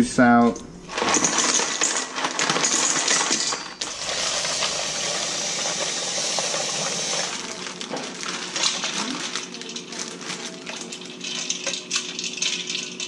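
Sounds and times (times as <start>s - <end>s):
ice cubes clattering into steel bowl: 0.9s - 13.0s
faucet running into a bowl: 3.8s - 7.6s.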